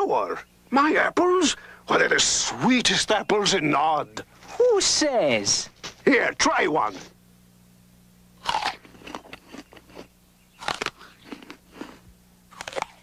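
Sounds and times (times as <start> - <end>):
apple bite crunch: 8.4 - 13.0
chewing crunches: 8.4 - 13.0.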